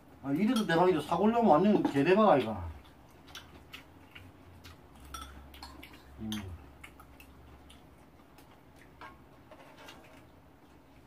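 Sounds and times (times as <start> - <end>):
utensils clinking on dishes: 5.0 - 6.6.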